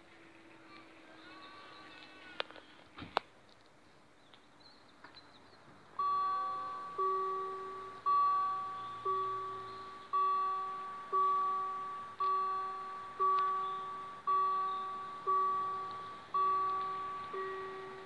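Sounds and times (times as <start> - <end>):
level-crossing warning bell: 6.0 - 18.0.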